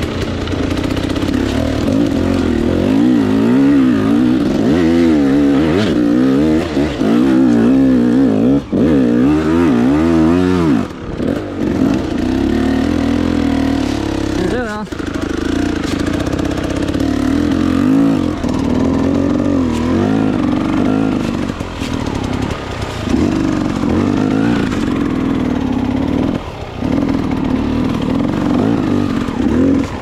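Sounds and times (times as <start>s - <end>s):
dirt bike engine revving: 0.0s - 30.0s.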